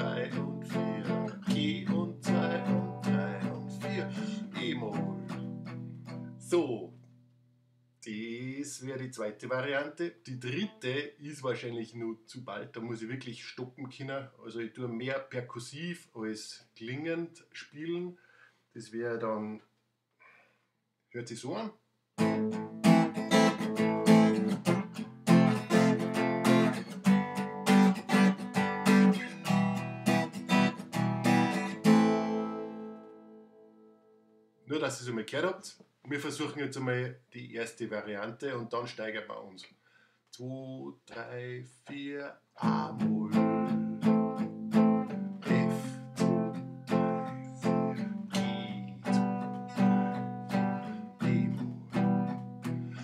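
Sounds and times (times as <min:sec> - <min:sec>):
acoustic guitar strummed percussively: 0:00.0 - 0:06.5, 0:22.2 - 0:34.0, 0:42.6 - 0:53.0.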